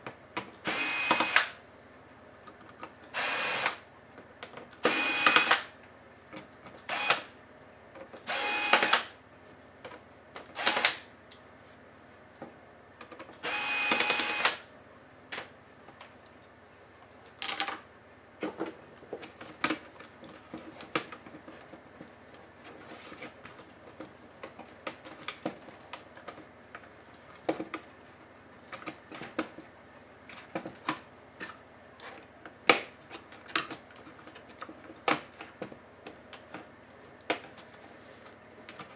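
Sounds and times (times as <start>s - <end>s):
electric screwdriver whirring: 0.6s - 1.5s, 3.1s - 3.8s, 4.8s - 5.7s, 6.9s - 7.3s, 8.3s - 9.1s, 10.6s - 11.0s, 13.4s - 14.6s.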